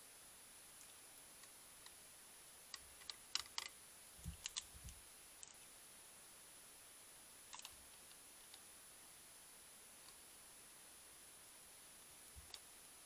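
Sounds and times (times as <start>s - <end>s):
bird feeder clicking and rattling: 2.7s - 3.7s, 4.3s - 4.7s.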